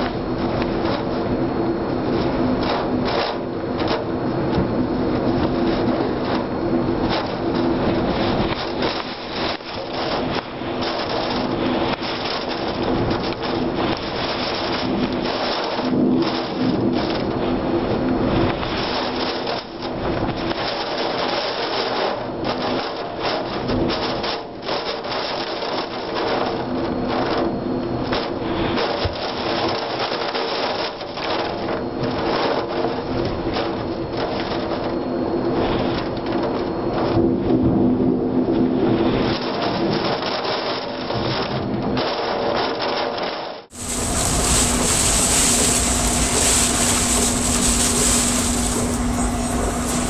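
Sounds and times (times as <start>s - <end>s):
wind and rain roaring: 0.0s - 50.0s
rain: 42.9s - 50.0s
low hum: 43.7s - 50.0s
storm wind gusting: 43.8s - 50.0s.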